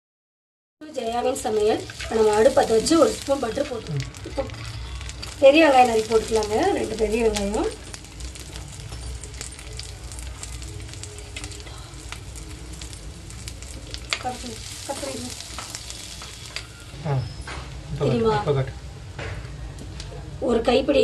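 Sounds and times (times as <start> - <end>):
onions sizzling in butter: 0.8 - 18.8.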